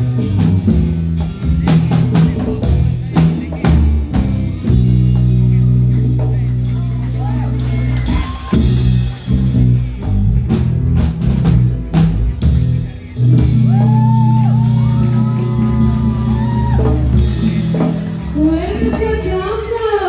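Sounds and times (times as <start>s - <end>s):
congas: 0.0s - 20.0s
drum kit: 0.0s - 20.0s
electric guitar: 0.0s - 20.0s
held bass note: 8.6s - 19.5s.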